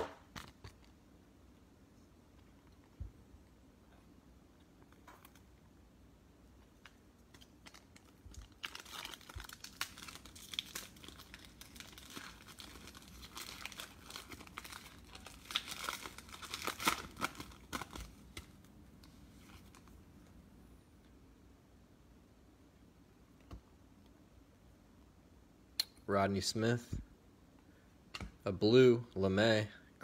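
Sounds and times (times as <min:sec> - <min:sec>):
foil wrapper crinkling and tearing: 0:06.8 - 0:18.6.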